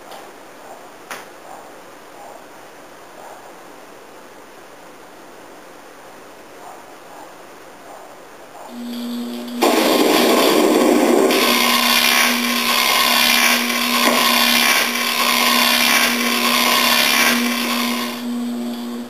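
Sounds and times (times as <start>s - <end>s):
loud whirring grinding noise: 8.7s - 19.0s
low hum: 8.7s - 19.0s.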